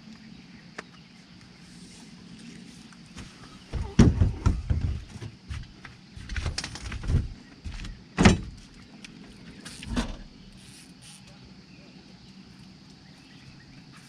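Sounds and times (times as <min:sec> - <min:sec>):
knocks and thumps on boat deck: 0:03.6 - 0:08.6.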